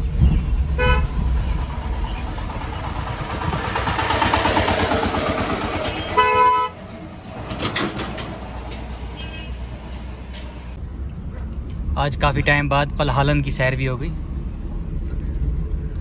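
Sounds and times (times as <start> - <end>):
traffic engine rumble and road noise: 0.0 - 16.0
vehicle horn: 0.8 - 1.2, 6.0 - 6.9, 9.1 - 9.6.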